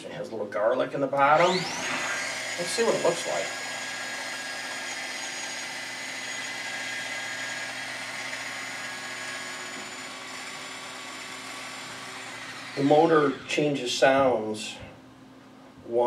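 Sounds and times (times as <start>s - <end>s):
food chopper motor running: 1.4s - 13.6s.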